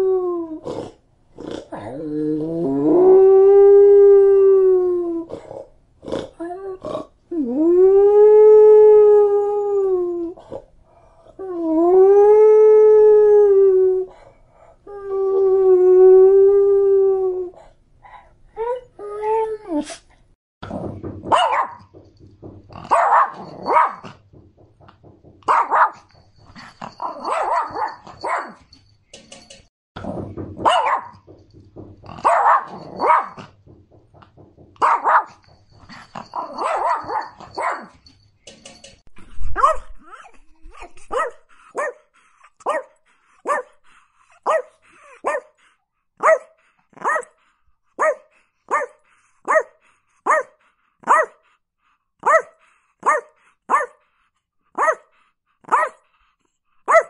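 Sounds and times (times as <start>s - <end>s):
small dog barking: 21.3s - 21.8s, 22.9s - 24.1s, 25.5s - 26.1s, 27.0s - 28.6s, 30.6s - 31.2s, 32.2s - 33.4s, 34.8s - 35.4s, 36.4s - 37.9s, 39.6s - 40.2s, 41.1s - 42.0s, 42.6s - 43.7s, 44.5s - 45.5s, 46.2s - 47.3s, 48.0s - 49.7s, 50.3s - 51.4s, 52.2s - 54.0s, 54.8s - 55.1s, 55.7s - 56.0s.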